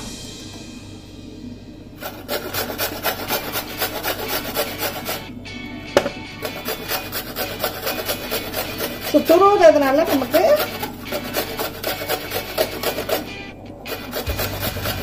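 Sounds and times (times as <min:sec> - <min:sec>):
fruit grated on metal grater: 0:02.0 - 0:05.3, 0:06.4 - 0:15.0.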